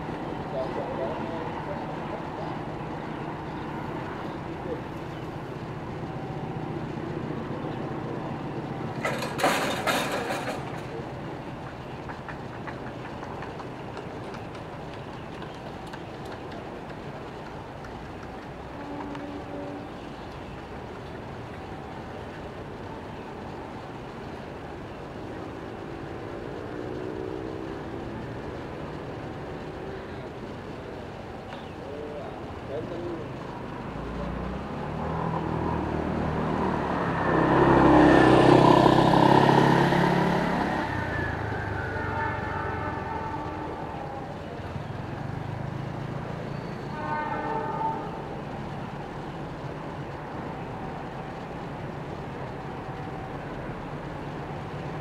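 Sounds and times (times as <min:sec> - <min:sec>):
distant rumble: 0:00.0 - 0:55.0
faint engine drone: 0:00.0 - 0:55.0
train horn: 0:18.6 - 0:20.2, 0:41.1 - 0:44.3, 0:46.6 - 0:48.5.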